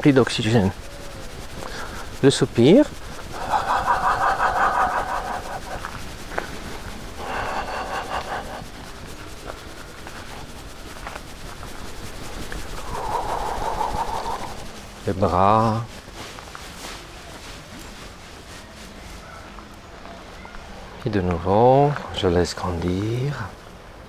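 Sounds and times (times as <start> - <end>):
man exhaling breathily: 3.2 - 6.0, 7.2 - 8.8, 12.8 - 14.8.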